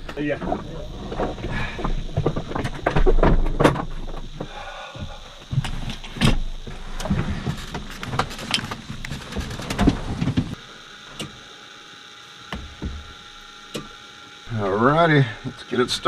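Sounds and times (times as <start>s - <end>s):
faint steady electronic tone: 10.5s - 16.0s.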